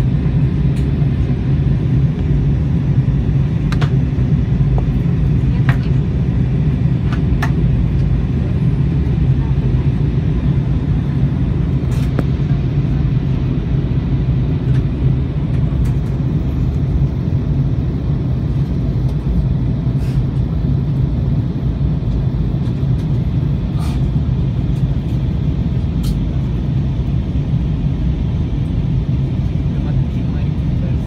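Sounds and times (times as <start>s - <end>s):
aircraft cabin rumble: 0.0s - 31.0s.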